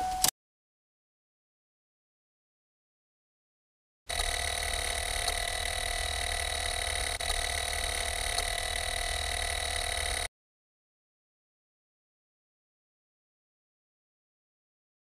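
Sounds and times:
starter solenoid chattering: 4.1s - 10.3s.

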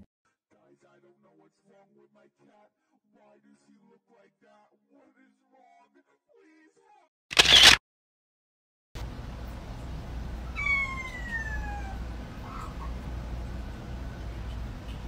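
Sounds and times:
low hum: 9.0s - 15.0s
cat meowing: 10.5s - 12.8s.

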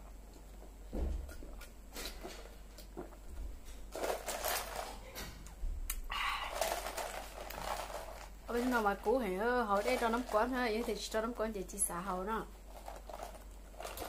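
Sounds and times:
breathy exhales: 6.1s - 6.8s.

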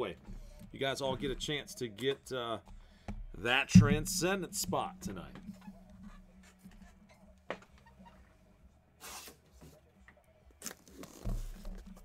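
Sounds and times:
low steady hum: 3.0s - 8.2s.

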